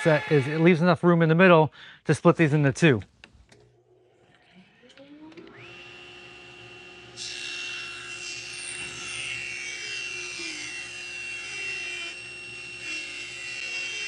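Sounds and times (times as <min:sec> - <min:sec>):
table saw motor whine: 0:04.2 - 0:14.0.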